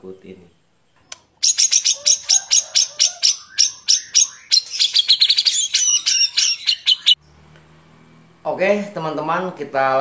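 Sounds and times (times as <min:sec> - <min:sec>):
songbird singing fast trill: 0:01.4 - 0:07.4.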